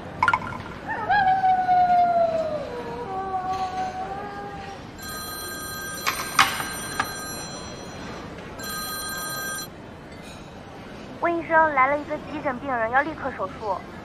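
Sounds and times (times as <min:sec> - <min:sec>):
phone ringtone: 0:05.0 - 0:09.7.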